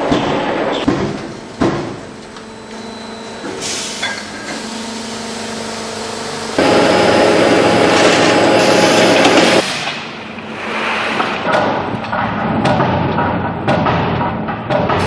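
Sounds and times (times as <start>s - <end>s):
loud dense machinery noise: 0.0s - 15.0s
machine hum: 0.9s - 10.4s
air hissing: 3.6s - 9.9s
sharp machine knock: 11.4s - 15.0s.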